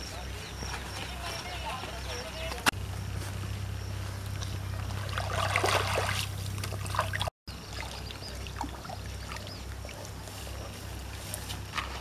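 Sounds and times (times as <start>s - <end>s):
water splashing and dribbling: 4.2s - 10.2s.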